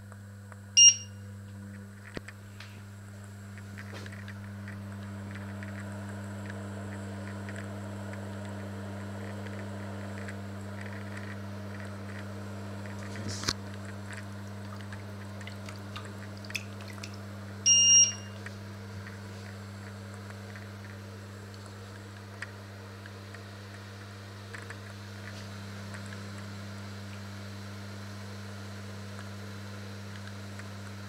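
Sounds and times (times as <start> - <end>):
electric hob humming: 0.0 - 31.0
short electronic beep: 0.8 - 1.2, 17.7 - 18.4.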